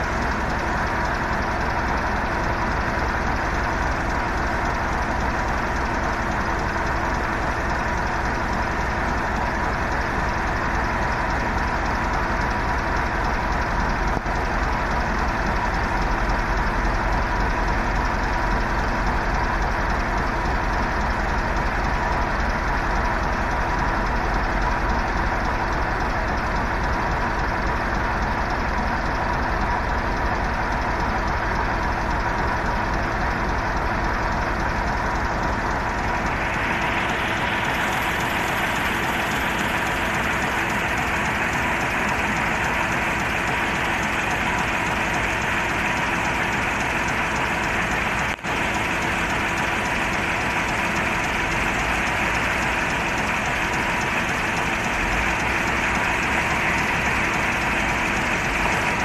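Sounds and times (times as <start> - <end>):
diesel engine rumbling: 0.0 - 59.0.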